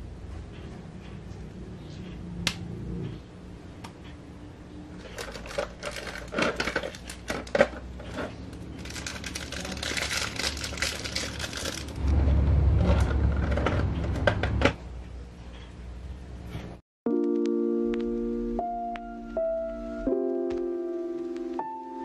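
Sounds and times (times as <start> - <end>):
plastic parts clicking: 5.0 - 12.0
plastic bag crinkling: 5.0 - 12.1
low rumbling handling noise: 5.2 - 16.8.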